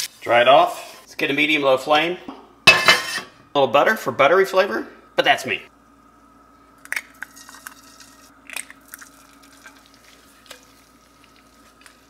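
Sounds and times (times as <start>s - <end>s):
faint steady hum: 0.2s - 12.0s
eggshells cracking: 6.8s - 12.0s
butter frying in a pan: 6.9s - 12.0s.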